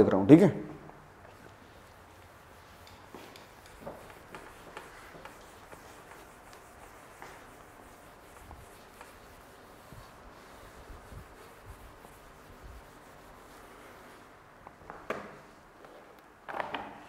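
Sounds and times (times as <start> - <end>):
eraser wiping whiteboard: 1.3 - 14.3.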